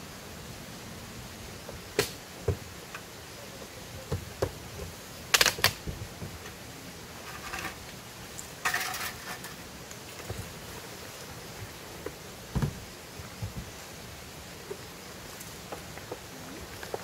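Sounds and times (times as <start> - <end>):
rustling scrape: 7.1 - 7.9, 8.6 - 10.6
small objects clicking and knocking: 8.6 - 9.6.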